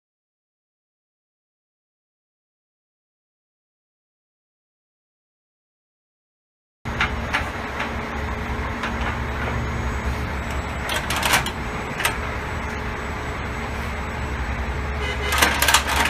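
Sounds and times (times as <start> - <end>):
steady low hum: 6.9 - 16.0.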